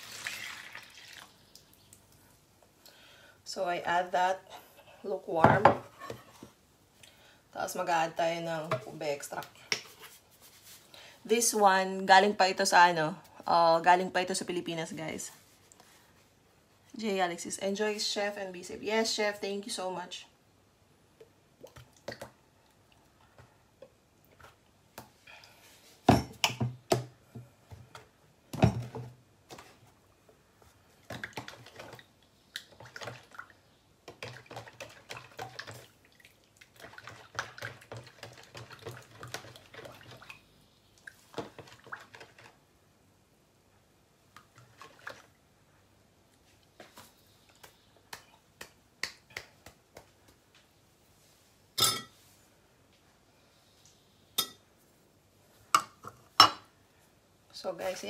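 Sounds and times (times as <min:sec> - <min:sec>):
spoon stirring in plastic bowl: 0:36.8 - 0:40.2.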